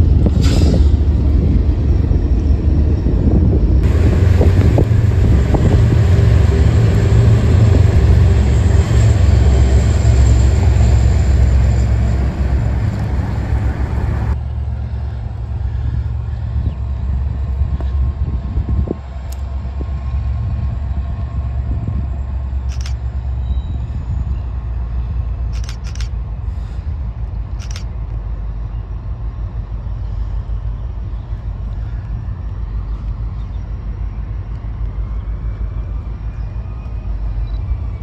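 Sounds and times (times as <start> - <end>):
freight train locomotives rumbling: 0.0 - 38.0
sharp clicks: 22.7 - 23.0, 25.5 - 26.2, 27.6 - 28.2.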